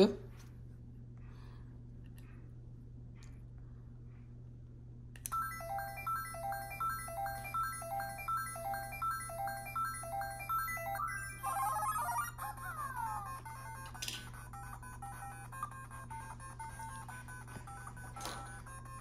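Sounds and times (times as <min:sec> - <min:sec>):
electronic game music: 0:05.3 - 0:19.0.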